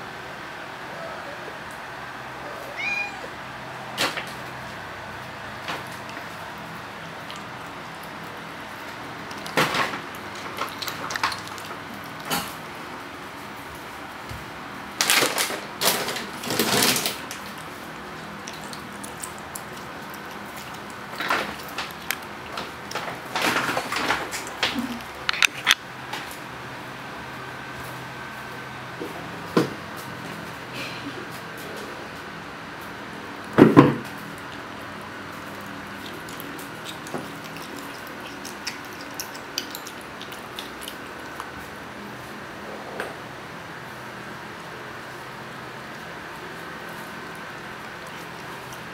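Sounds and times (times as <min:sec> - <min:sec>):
background hum: 0:00.0 - 0:48.9
cat chewing meat: 0:05.5 - 0:13.4, 0:16.6 - 0:25.8, 0:34.2 - 0:42.3, 0:45.0 - 0:48.9.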